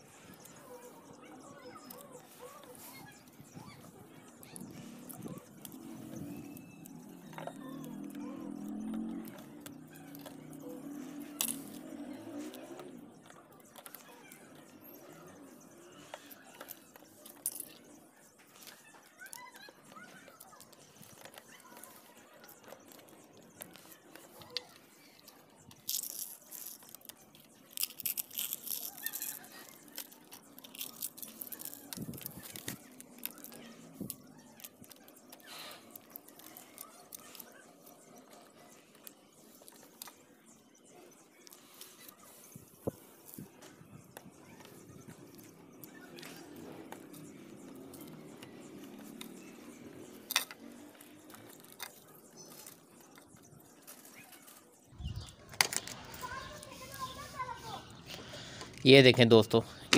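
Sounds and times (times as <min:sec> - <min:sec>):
peel and eggshell tearing and crackling: 0:02.6 - 0:14.1, 0:18.6 - 0:38.4, 0:48.8 - 0:53.2.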